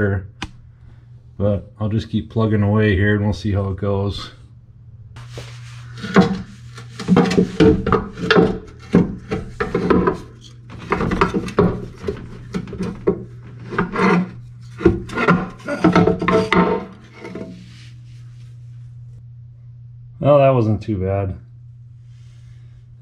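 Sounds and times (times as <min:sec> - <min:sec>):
hand tools rasping and scraping: 0:05.2 - 0:17.9
tool clanks: 0:07.0 - 0:17.6.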